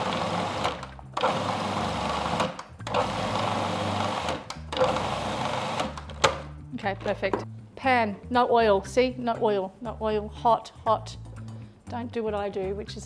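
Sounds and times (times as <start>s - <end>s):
food processor pulsing: 0.0s - 6.1s.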